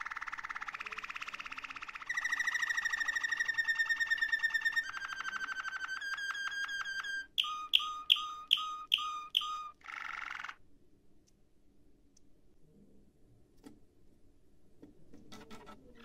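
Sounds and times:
canary singing trills: 0.0 - 10.6.

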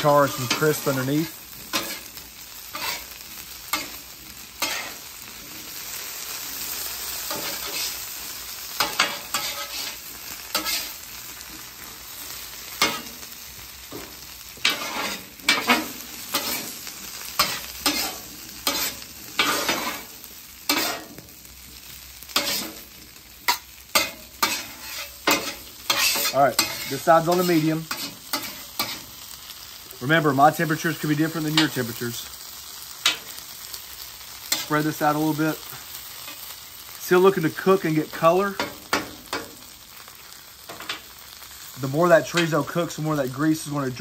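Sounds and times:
food sizzling on a griddle: 0.0 - 44.0
metal spatulas scraping steel: 2.7 - 3.1, 4.6 - 5.0, 8.8 - 11.0, 14.6 - 16.7, 17.4 - 20.1, 20.7 - 21.1, 22.4 - 22.8, 23.5 - 29.0.

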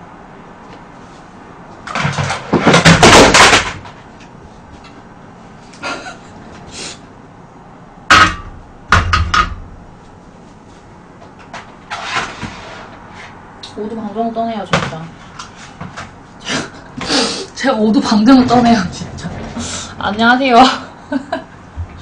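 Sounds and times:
frying pan knocking on stove: 8.1 - 9.7.

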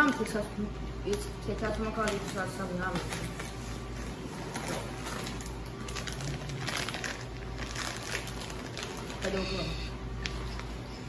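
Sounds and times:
paper crinkling: 2.0 - 9.6.

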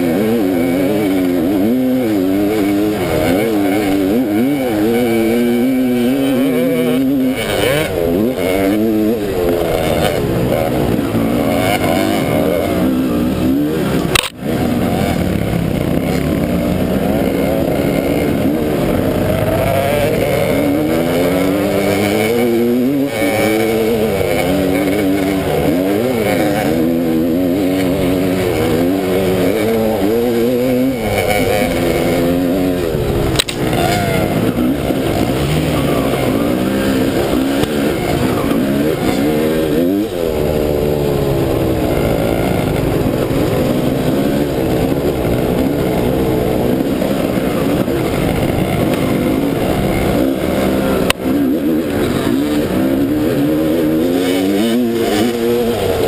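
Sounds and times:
dirt bike engines revving: 0.0 - 56.0.

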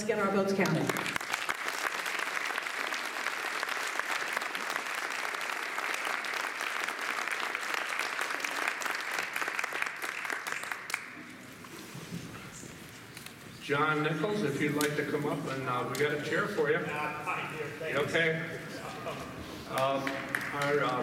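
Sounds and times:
audience applauding: 0.6 - 11.5, 18.9 - 21.0.

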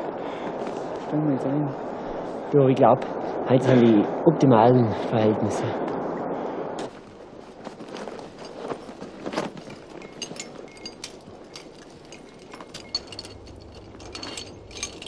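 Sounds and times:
steady rushing noise: 0.0 - 15.0
metal gear clinking: 9.4 - 15.0.

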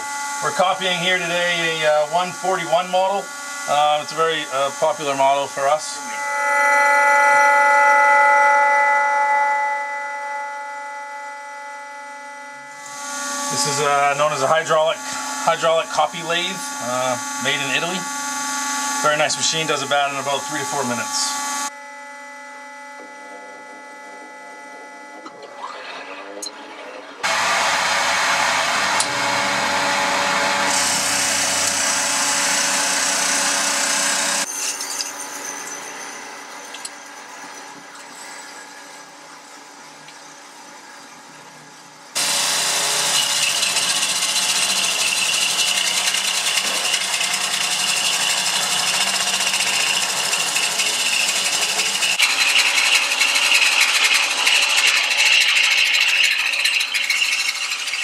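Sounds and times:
lathe cutting wood: 0.0 - 21.8, 22.9 - 34.5, 42.2 - 58.0
high steady tone: 0.0 - 27.4
machine running: 0.0 - 34.5, 40.3 - 58.0.

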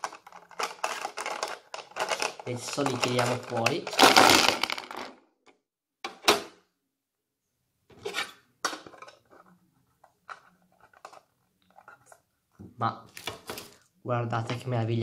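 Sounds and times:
plastic pens clattering: 0.0 - 5.2, 8.7 - 12.2.

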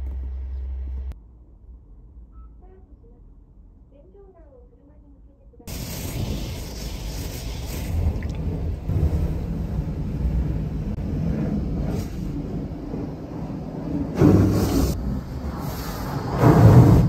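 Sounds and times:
water spraying against glass: 5.7 - 8.7
car wash machine rumbling: 5.7 - 17.0.

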